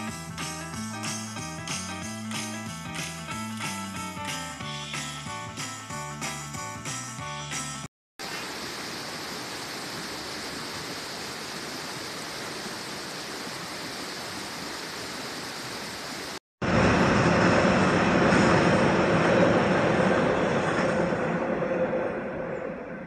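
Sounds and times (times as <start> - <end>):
water rushing over rocks: 8.2 - 16.4
low rushing noise: 16.6 - 23.0.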